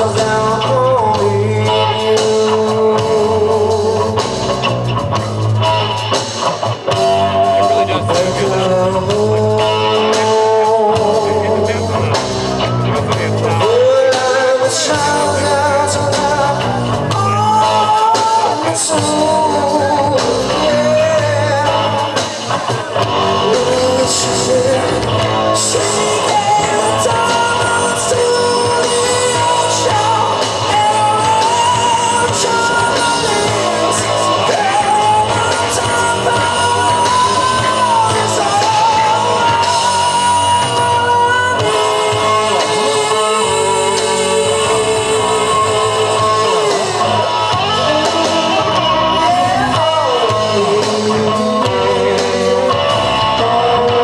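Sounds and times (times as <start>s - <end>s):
person singing: 0.0s - 4.9s, 5.6s - 54.0s
drums: 0.0s - 54.0s
electric guitars: 0.0s - 54.0s.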